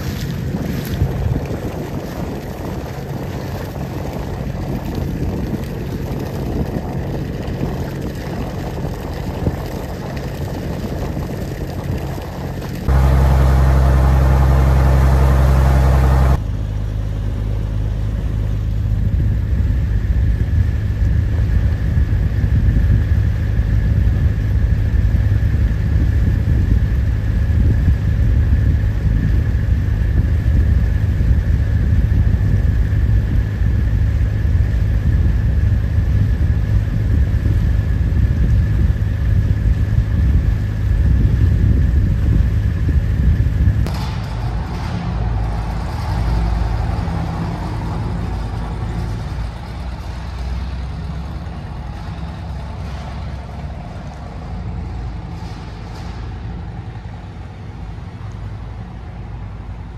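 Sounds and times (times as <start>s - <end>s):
machinery rumbling: 0.0s - 59.9s
high whine: 11.1s - 56.4s
hissy ambience: 12.7s - 16.4s.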